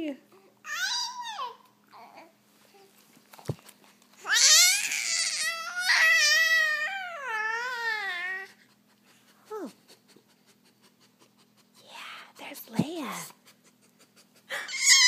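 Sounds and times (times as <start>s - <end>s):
infant squealing and cooing: 0.6s - 2.3s, 4.2s - 8.6s, 14.5s - 15.0s.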